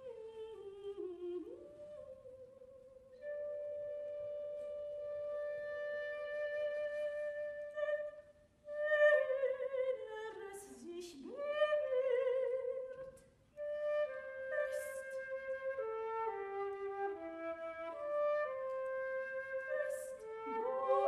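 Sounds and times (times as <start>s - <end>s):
flute playing: 3.2s - 8.1s, 13.6s - 21.0s
soprano singing: 8.7s - 13.2s, 19.6s - 21.0s.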